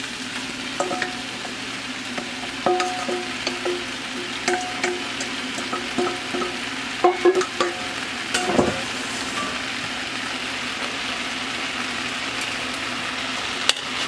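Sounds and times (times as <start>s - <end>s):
noodles sizzling in a pot: 0.0s - 14.0s
wooden spoon knocking on metal bowl: 0.8s - 1.6s, 2.2s - 8.8s
heavy thump: 8.4s - 8.9s.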